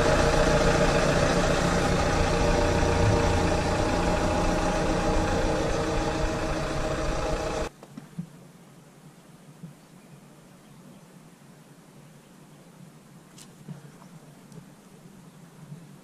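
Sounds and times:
car engine idling: 0:00.0 - 0:07.7.

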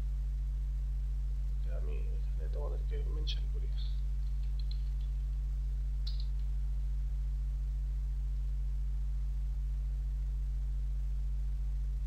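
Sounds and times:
low electrical hum: 0:00.0 - 0:12.0
computer keyboard clicks: 0:04.2 - 0:05.1.

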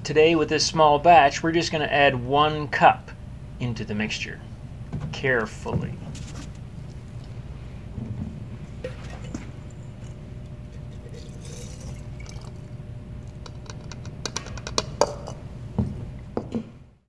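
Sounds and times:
steady low hum: 0:00.0 - 0:17.0
liquid pouring into glass jar: 0:08.8 - 0:13.6
sharp clicks and knocks: 0:13.4 - 0:15.4.

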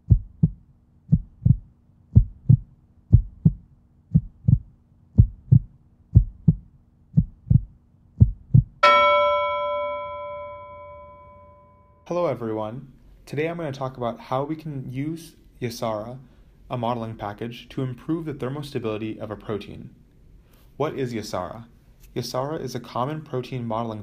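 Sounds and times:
heartbeat thumps: 0:00.0 - 0:08.8
bell strike ringing: 0:08.8 - 0:12.1.

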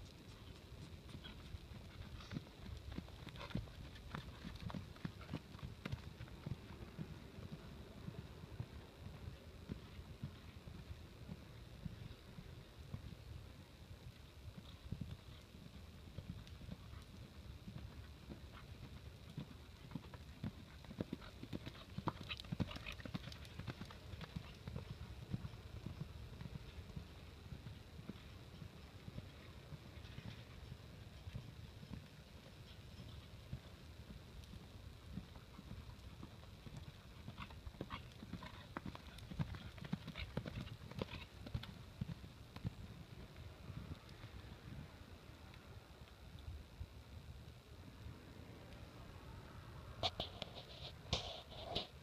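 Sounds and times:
hoofbeats on soft dirt: 0:00.0 - 0:45.6.

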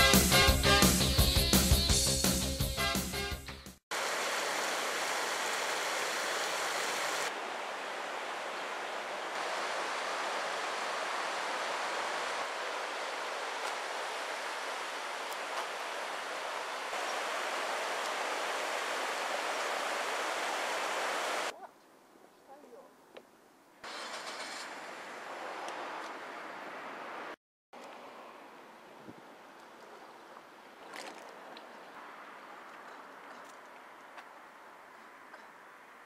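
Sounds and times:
river rushing over rocks: 0:04.0 - 0:21.5.

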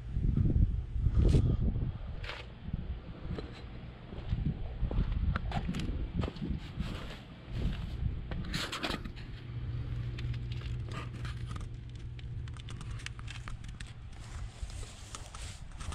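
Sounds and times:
rustling handling noise: 0:06.8 - 0:15.9.

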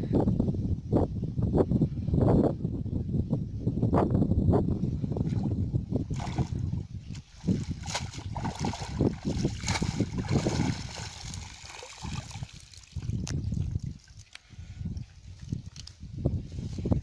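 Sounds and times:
water splashing: 0:06.1 - 0:14.3
fish thrashing in water: 0:07.4 - 0:13.0.

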